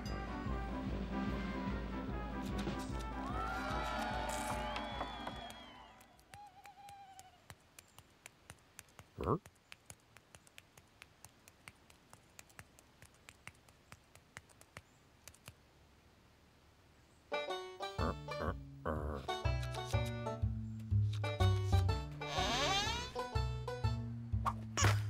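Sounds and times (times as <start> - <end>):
plucked banjo music: 17.3 - 25.0
short rising squeak: 22.2 - 23.2.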